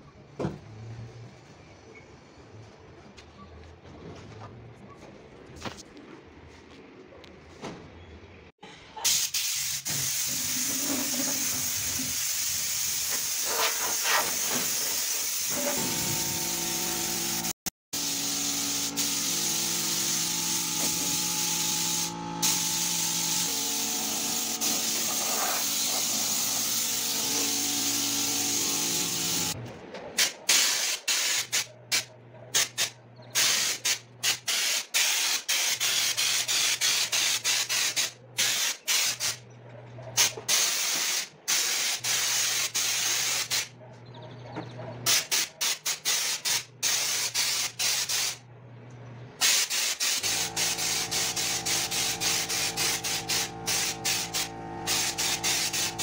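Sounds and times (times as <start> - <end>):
compressed air hissing from air gun: 9.0 - 10.7, 11.3 - 15.6, 17.3 - 29.6, 30.2 - 32.0, 32.6 - 39.4, 40.5 - 43.7, 45.1 - 48.4, 49.4 - 56.0
machine hum: 15.6 - 24.6, 50.2 - 56.0.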